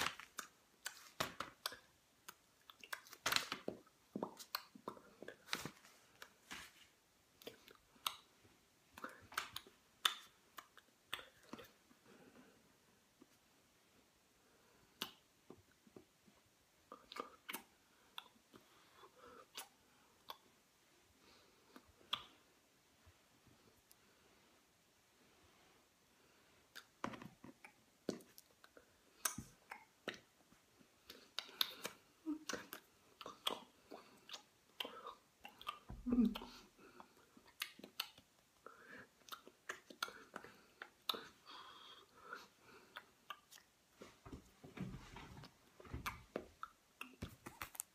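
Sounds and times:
mouth clicks and smacks: 0.0 - 6.4, 7.3 - 11.9, 14.9 - 16.1, 16.8 - 20.8, 21.7 - 22.5, 26.7 - 43.9, 45.4 - 47.9.

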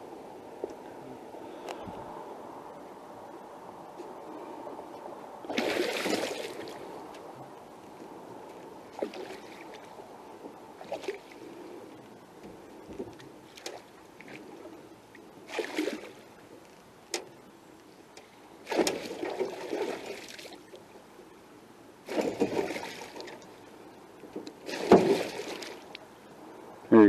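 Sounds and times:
fish splashing in water: 5.5 - 6.9, 15.5 - 16.2, 18.7 - 20.6, 24.6 - 25.9.

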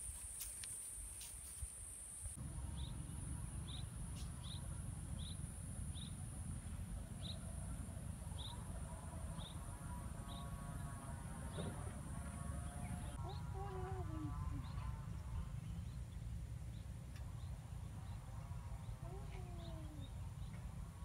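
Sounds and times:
insects droning: 0.0 - 14.8.

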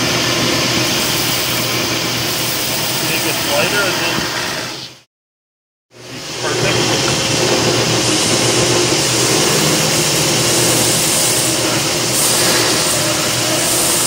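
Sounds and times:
belt sander grinding steel: 6.4 - 14.0.

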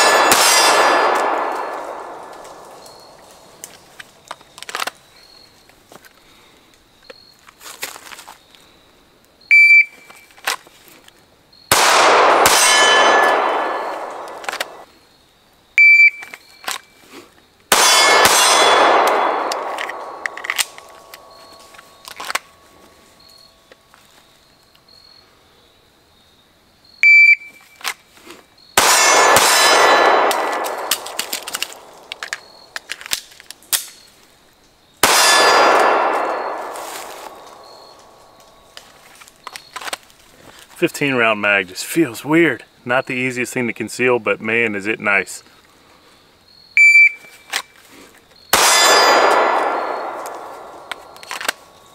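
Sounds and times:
pistol shots ringing: 0.0 - 3.8, 11.7 - 14.8, 17.7 - 22.6, 28.8 - 32.8, 35.0 - 38.7, 48.5 - 51.9
shot timer beeps: 46.8 - 47.3.

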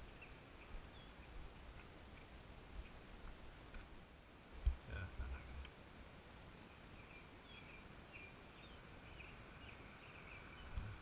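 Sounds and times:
faint songbird chirps: 0.0 - 3.6, 6.4 - 11.0.

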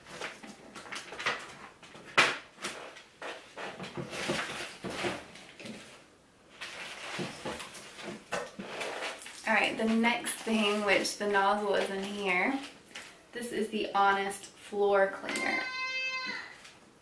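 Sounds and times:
rustling in a box: 2.7 - 13.2.

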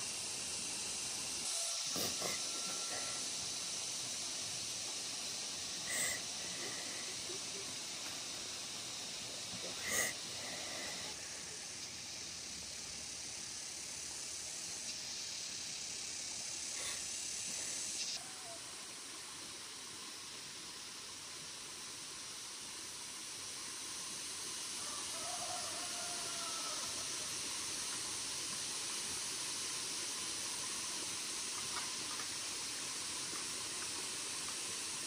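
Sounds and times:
outdoor background hiss: 0.0 - 35.0.

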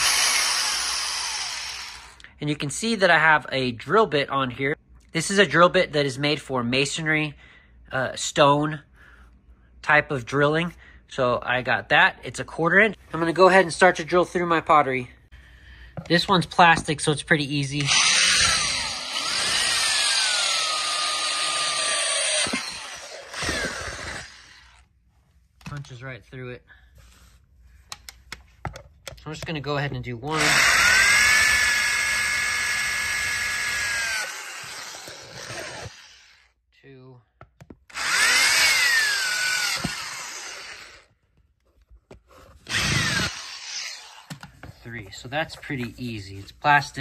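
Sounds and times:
drill grinding through plastic: 0.0 - 2.2, 17.8 - 24.8, 30.3 - 36.5, 37.9 - 41.1, 42.6 - 44.6.

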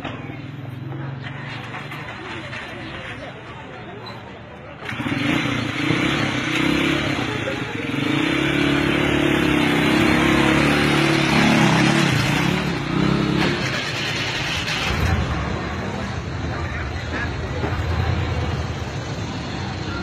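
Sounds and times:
street traffic noise: 0.0 - 20.0
motorcycle engine passing: 4.8 - 16.3.

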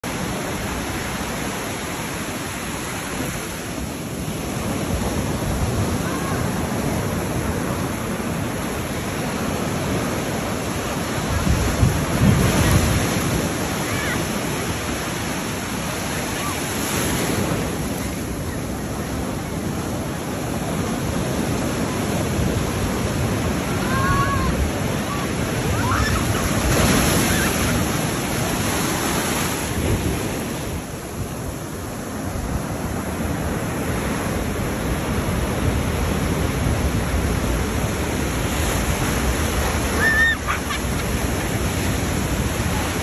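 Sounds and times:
ocean waves breaking on beach: 0.0 - 43.0
wind buffeting microphone: 9.2 - 13.8.

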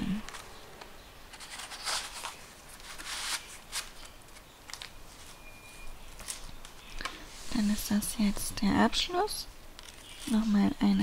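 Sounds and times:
cardstock pages rustling: 1.3 - 5.4.

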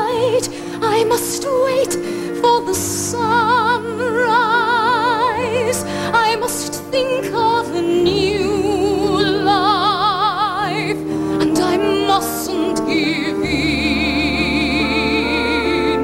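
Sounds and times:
orchestral accompaniment: 0.0 - 16.0
woman singing a slow ballad: 0.0 - 16.0.

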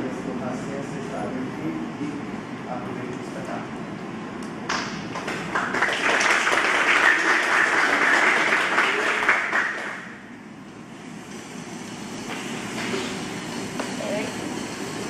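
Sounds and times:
audience applauding: 5.1 - 10.1.

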